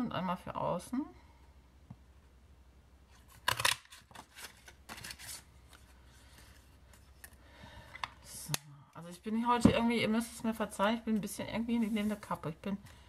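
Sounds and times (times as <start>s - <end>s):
card rustling and sliding: 3.1s - 7.4s.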